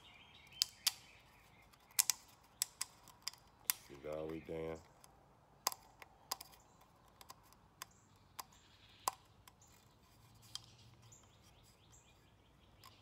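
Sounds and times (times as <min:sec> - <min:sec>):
fingers clicking plastic cap: 0:00.4 - 0:01.1, 0:01.7 - 0:09.8.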